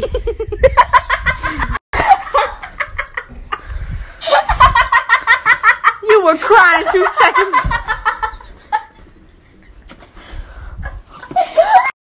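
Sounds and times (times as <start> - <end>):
person laughing hard: 11.3 - 11.9.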